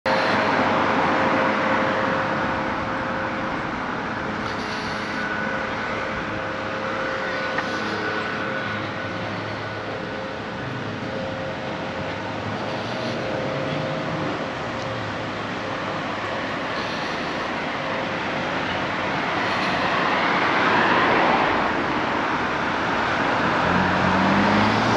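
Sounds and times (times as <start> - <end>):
road traffic hum: 0.0 - 24.9
car passing close by: 19.4 - 24.9.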